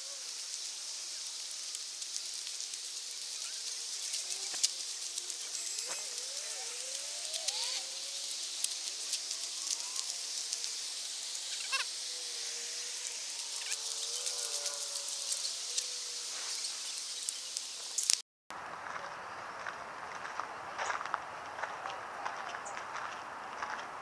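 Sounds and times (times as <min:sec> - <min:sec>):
steady high outdoor hiss: 0:00.0 - 0:24.0
footsteps on paved path: 0:18.5 - 0:24.0.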